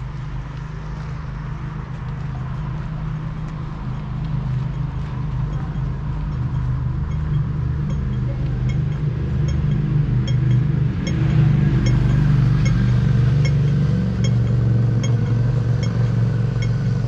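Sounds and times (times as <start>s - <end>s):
traffic engine drone: 0.0s - 17.0s.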